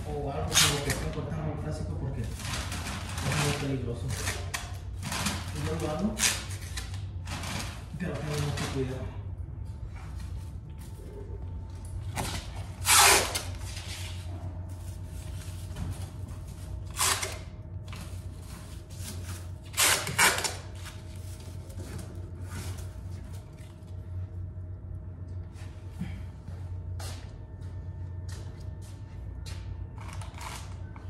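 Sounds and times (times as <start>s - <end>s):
steady low hum: 0.0s - 31.0s
masking tape pulled off roll: 12.8s - 13.5s.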